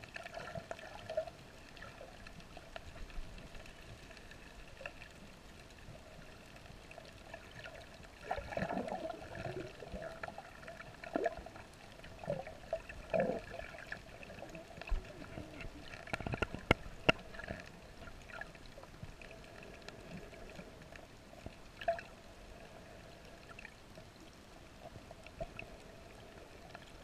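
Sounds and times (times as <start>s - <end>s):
muffled underwater hiss: 0.0s - 27.0s
water gurgling and sloshing: 0.0s - 27.0s.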